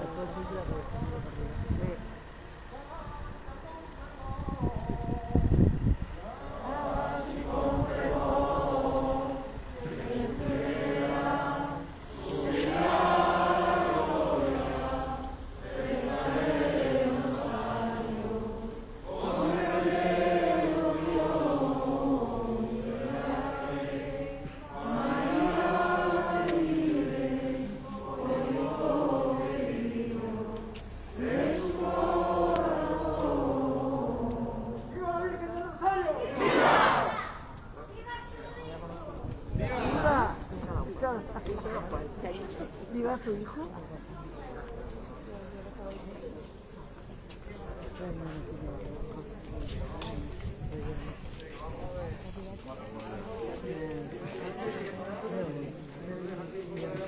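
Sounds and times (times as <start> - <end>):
group singing devotional song: 4.3 - 37.6.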